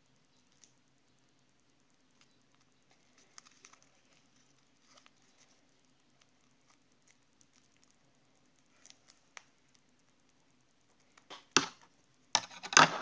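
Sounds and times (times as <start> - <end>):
plastic rustle: 2.9 - 5.7.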